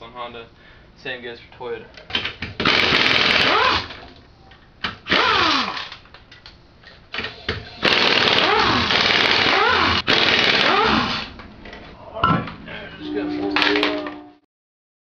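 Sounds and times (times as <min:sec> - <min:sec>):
pneumatic impact wrench rattling: 0:02.1 - 0:04.0, 0:05.0 - 0:06.1, 0:06.8 - 0:11.4.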